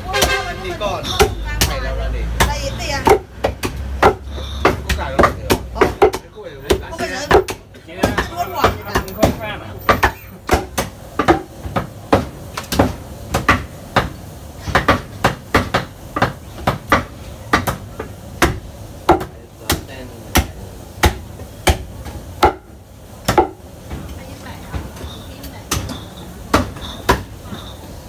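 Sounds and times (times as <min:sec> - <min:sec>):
cleaver chopping on wooden block: 0:02.4 - 0:14.1, 0:14.7 - 0:23.6.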